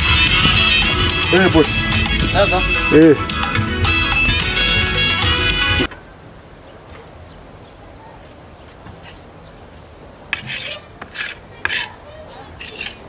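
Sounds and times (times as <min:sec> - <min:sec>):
trowel scraping mortar: 0:10.3 - 0:13.0.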